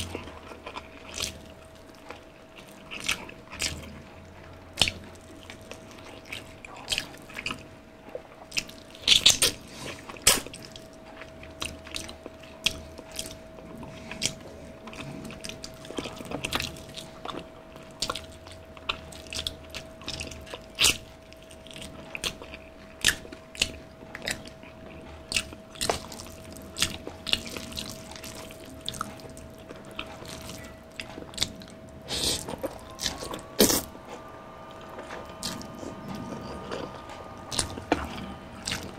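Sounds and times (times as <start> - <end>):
wet chewing: 0.0 - 33.9, 34.7 - 38.9.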